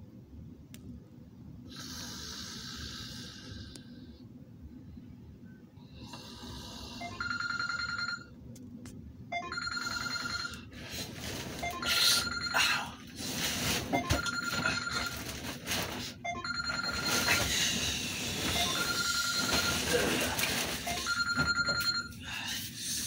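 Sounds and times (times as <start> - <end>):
phone electronic ringtone: 7.0 - 8.4, 9.3 - 10.7, 11.6 - 12.8, 14.0 - 17.5, 18.5 - 20.0, 20.8 - 22.2.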